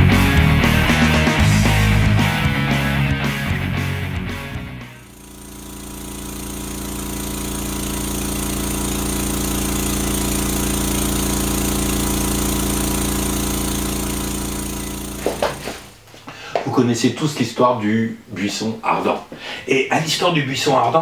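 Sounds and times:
electronic buzzing drone: 5.0 - 15.7.

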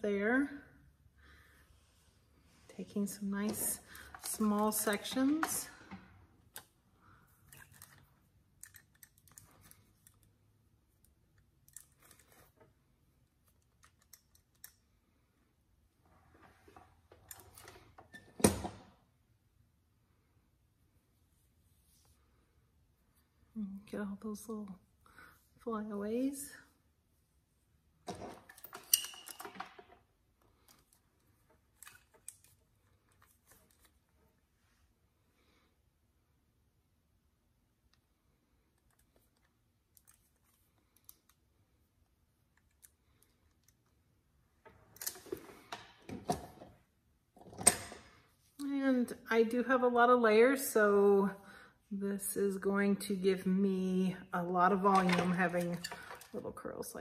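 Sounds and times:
curling iron clicks and rustles: 3.4 - 6.7, 54.7 - 56.6.

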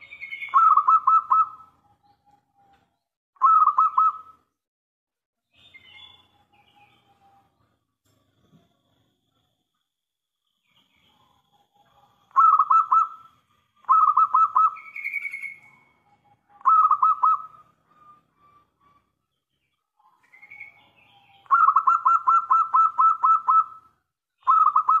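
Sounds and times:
dove cooing: 0.3 - 1.7, 3.4 - 4.3, 11.8 - 18.9, 20.1 - 23.9, 24.5 - 25.0.

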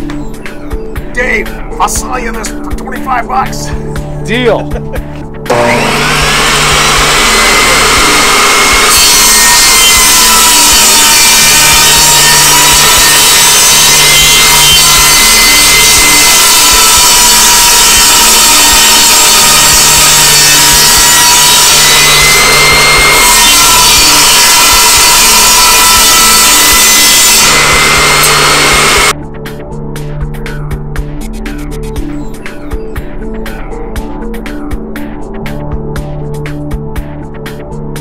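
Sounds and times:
saw cutting plank: 5.5 - 29.1
table saw motor whine: 5.5 - 29.1.

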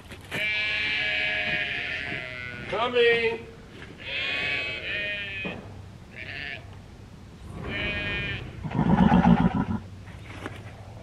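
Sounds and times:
rough low sheep call: 0.3 - 2.8, 4.0 - 5.5, 7.6 - 9.8
sheep bleating: 0.4 - 2.8, 4.0 - 5.5, 6.2 - 6.7, 7.7 - 8.6.

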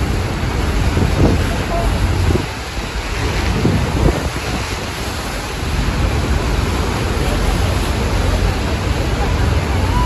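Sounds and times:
churning water: 0.0 - 10.0
waterfall roaring: 0.0 - 10.0
wind rumbling on microphone: 0.0 - 10.0.

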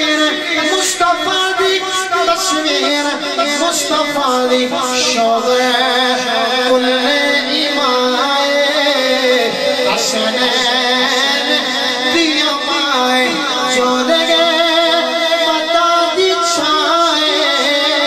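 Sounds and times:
man singing through pa: 0.0 - 18.0.

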